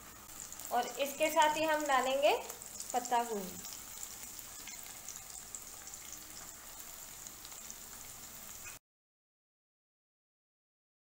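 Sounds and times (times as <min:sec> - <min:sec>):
vegetables sizzling in oil: 0:00.0 - 0:08.8.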